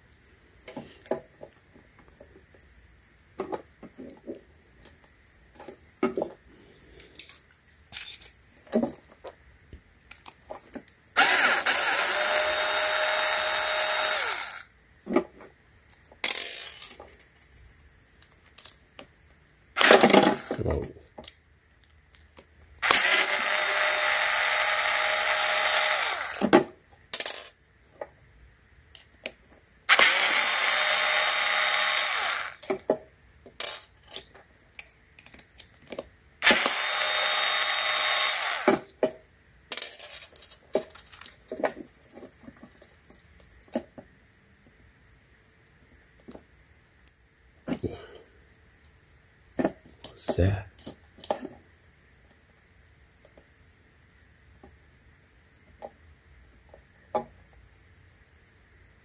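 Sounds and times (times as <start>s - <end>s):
cordless drill backing out screws: 36.4s - 38.8s.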